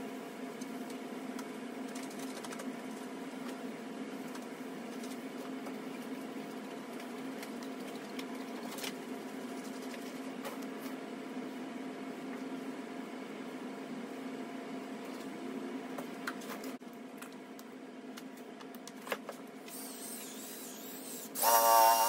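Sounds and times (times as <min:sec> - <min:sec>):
motor humming: 0:19.7 - 0:22.0.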